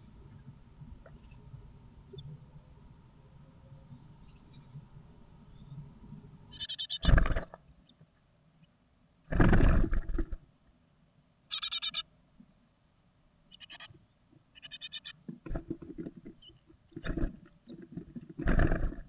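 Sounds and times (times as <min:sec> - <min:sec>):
nestlings begging calls: 0:06.5 - 0:07.4, 0:11.5 - 0:12.0, 0:13.5 - 0:14.0, 0:14.6 - 0:15.2
wing fluttering and scrabbling: 0:06.5 - 0:07.6, 0:09.3 - 0:10.5, 0:14.6 - 0:19.0.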